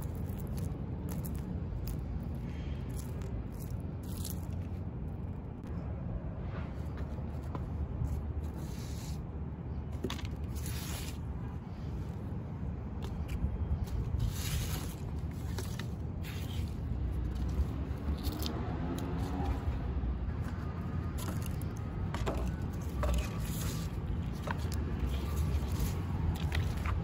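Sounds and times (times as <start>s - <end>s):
low city traffic rumble: 0.0s - 27.0s
leaves and stems rustling: 13.1s - 19.6s, 22.4s - 27.0s.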